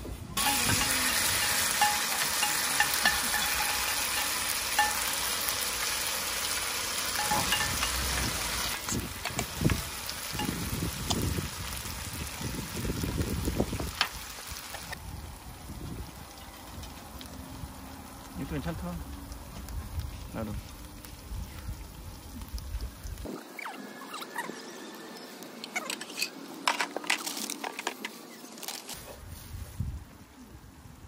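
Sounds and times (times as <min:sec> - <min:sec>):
food sizzling in oiled pan: 0:00.4 - 0:23.3.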